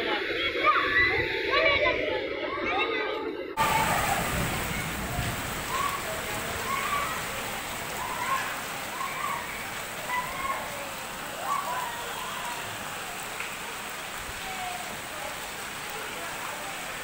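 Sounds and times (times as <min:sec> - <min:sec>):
people calling out: 0:03.6 - 0:16.5
heavy rain and flood water hissing: 0:03.6 - 0:17.0.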